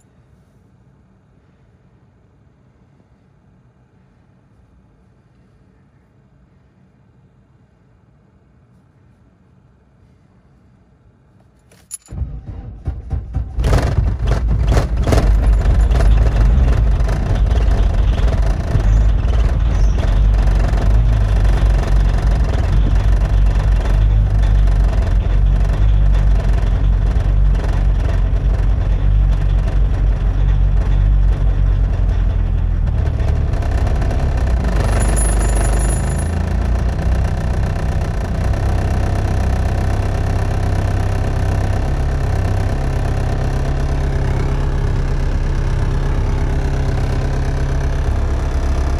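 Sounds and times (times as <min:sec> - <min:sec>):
diesel engine idling: 0:12.1 - 0:48.9.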